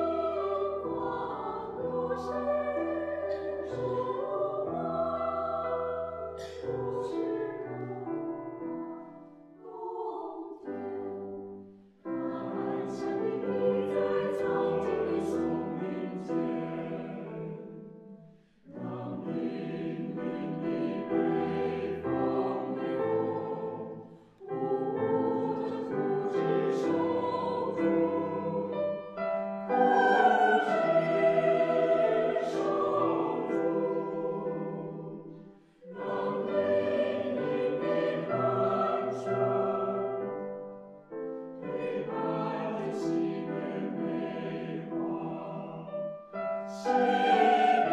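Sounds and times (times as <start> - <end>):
mixed choir singing: 0.0 - 8.1, 9.6 - 40.8, 41.6 - 47.9
piano accompaniment: 11.1 - 47.9.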